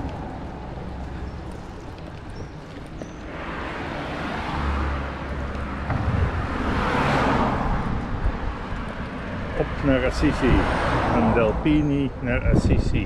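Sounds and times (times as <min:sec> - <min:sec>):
low rumble: 0:05.8 - 0:08.8.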